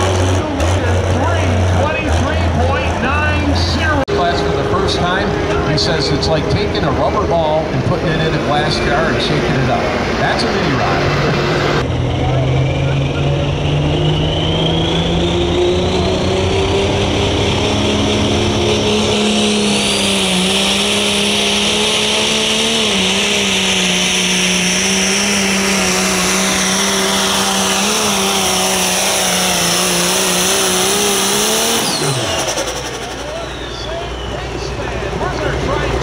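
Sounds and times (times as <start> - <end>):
diesel engine running flat out: 0.0 - 36.0
high turbo whine: 0.0 - 36.0.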